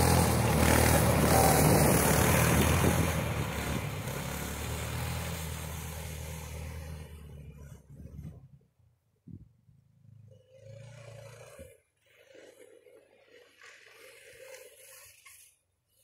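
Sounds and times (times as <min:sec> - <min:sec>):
snowmobile engine running: 0:00.0 - 0:08.3.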